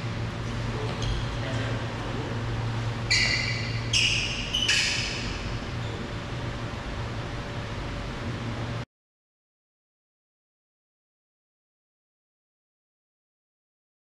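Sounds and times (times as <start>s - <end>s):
low steady hum: 0.0s - 8.9s.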